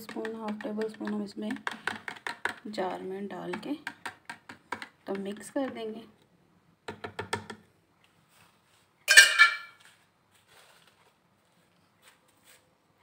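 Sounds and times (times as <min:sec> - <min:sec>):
metal spoon clinking on glass jar: 0:09.1 - 0:09.8.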